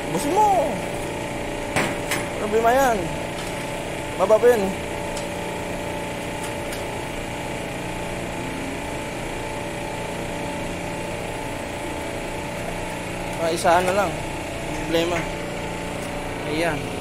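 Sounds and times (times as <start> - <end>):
machinery humming: 0.0 - 17.0.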